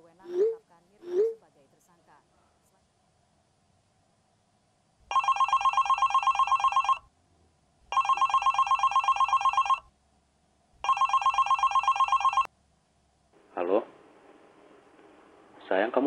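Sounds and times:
smartphone ringing: 0:05.1 - 0:07.0, 0:07.9 - 0:09.9, 0:10.8 - 0:12.5.

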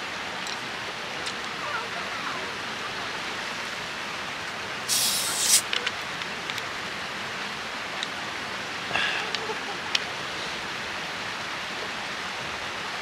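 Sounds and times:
steady background hiss: 0:00.0 - 0:13.0
short burst of hiss: 0:04.9 - 0:05.7.

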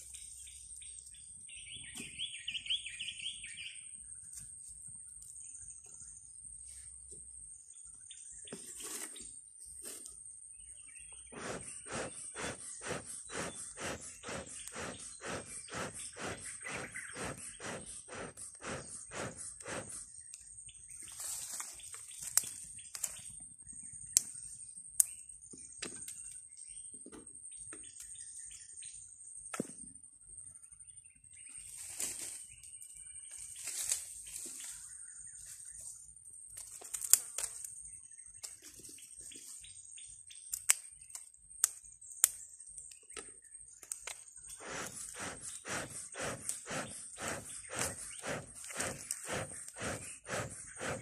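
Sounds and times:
bellows puffing air: 0:11.3 - 0:20.1, 0:44.5 - 0:51.0.

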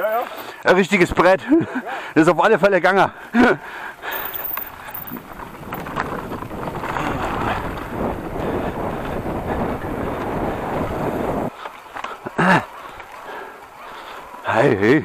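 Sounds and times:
tyres rolling over trail: 0:00.0 - 0:15.0
wind rushing over microphone: 0:04.3 - 0:11.5.

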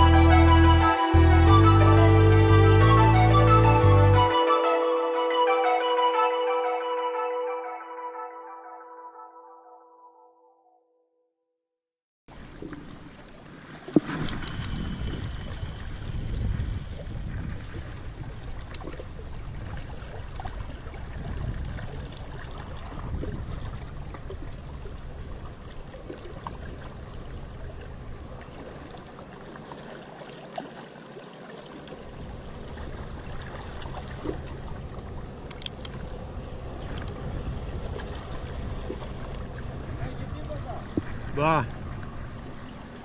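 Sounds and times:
sea water washing on rocks: 0:12.4 - 0:43.0
wind buffeting microphone: 0:14.0 - 0:28.9, 0:32.1 - 0:42.7
faint clicks: 0:35.4 - 0:36.0.

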